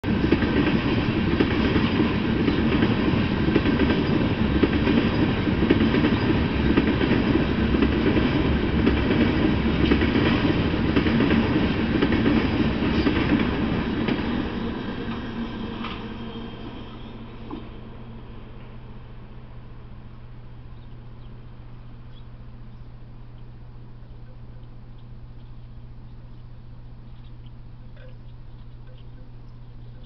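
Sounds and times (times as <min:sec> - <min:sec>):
train wheels rumbling on rails: 0:00.0 - 0:19.3.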